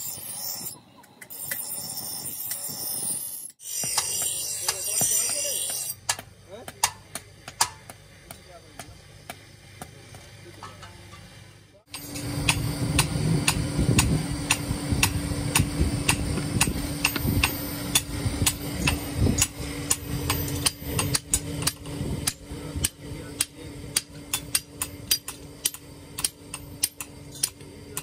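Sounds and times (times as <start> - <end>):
low hum: 6.1 - 28.0.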